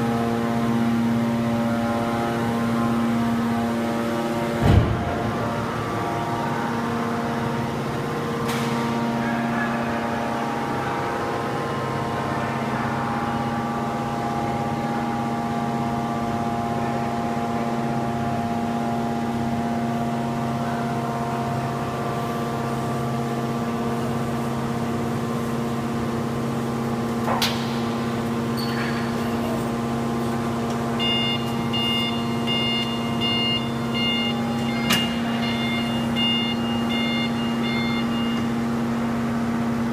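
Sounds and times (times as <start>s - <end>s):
hydraulic power unit humming: 0.0s - 39.9s
electronic beeps: 31.0s - 38.5s.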